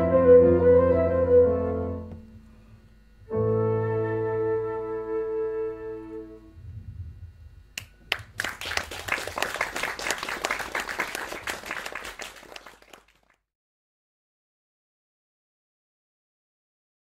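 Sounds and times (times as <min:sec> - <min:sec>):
flute ensemble chord: 0:03.3 - 0:06.6
audience applause: 0:07.8 - 0:13.4.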